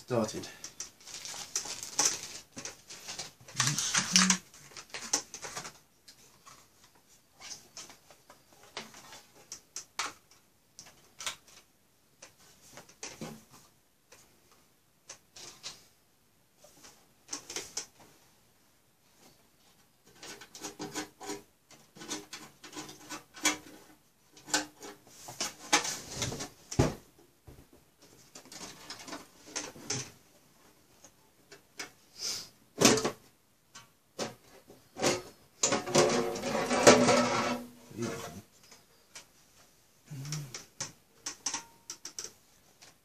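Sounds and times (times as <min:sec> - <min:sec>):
clicks knocks and scrapes: 0:20.0 - 0:26.5.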